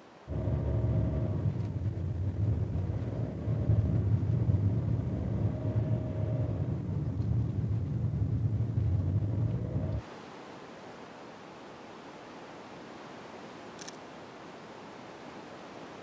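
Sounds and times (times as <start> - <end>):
car engine and road noise: 0.3 - 10.1.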